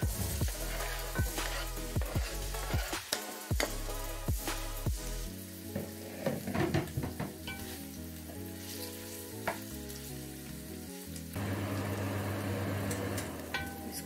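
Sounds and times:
onions sizzling in hot oil: 0:00.0 - 0:14.0
wooden spoon scraping a pot: 0:00.1 - 0:03.8.

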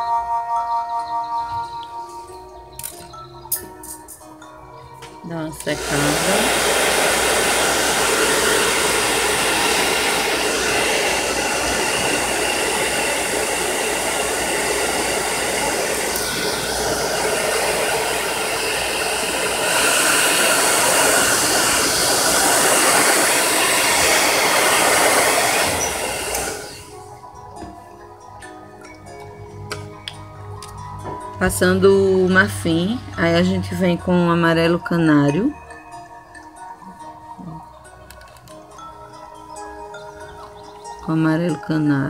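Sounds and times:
hair dryer blowing: 0:05.5 - 0:27.7.

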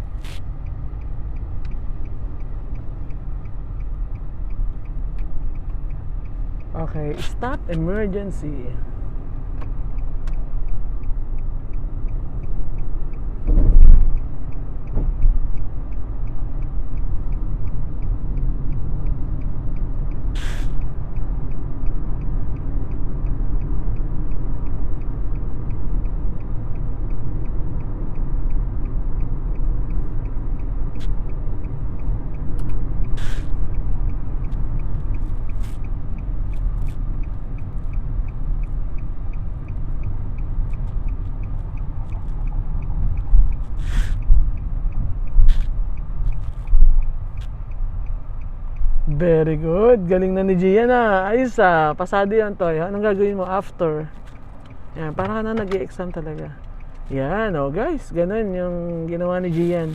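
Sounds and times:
car cabin road rumble: 0:00.0 - 0:59.9
loud thump: 0:13.5 - 0:14.1
faint clicks: 0:52.9 - 0:59.9.

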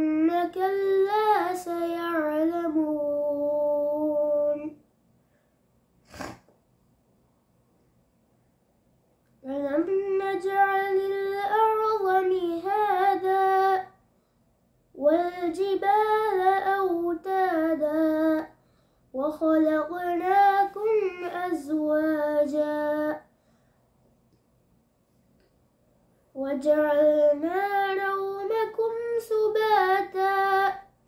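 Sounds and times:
boy chanting melodically: 0:00.0 - 0:04.8, 0:09.4 - 0:14.0, 0:15.0 - 0:18.6, 0:19.2 - 0:23.3, 0:26.3 - 0:30.9.

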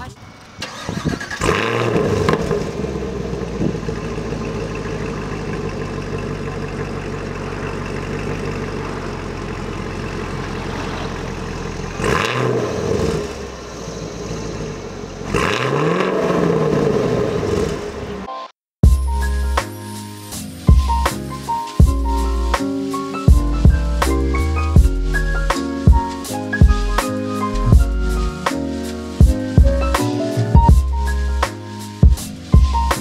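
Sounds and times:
car engine idling and revving: 0:00.0 - 0:18.3.

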